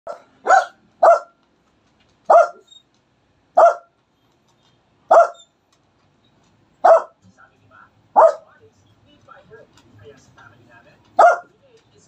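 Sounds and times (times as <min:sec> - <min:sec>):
dog barking: 0:00.1 - 0:01.4, 0:02.3 - 0:02.7, 0:03.6 - 0:03.9, 0:05.1 - 0:05.5, 0:06.8 - 0:07.2, 0:08.2 - 0:08.5, 0:11.2 - 0:11.5.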